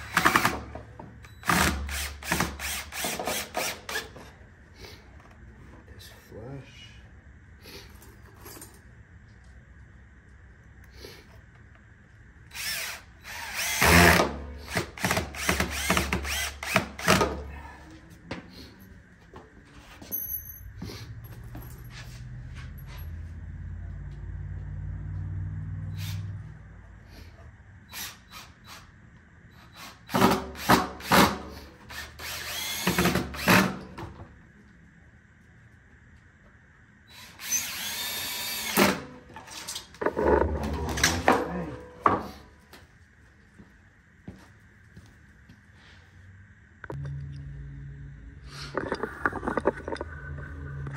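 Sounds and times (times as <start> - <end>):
cordless drill drilling into wood: 0.0 - 0.7, 1.4 - 4.2, 12.5 - 17.4, 27.9 - 28.8, 29.6 - 33.8, 37.1 - 39.0.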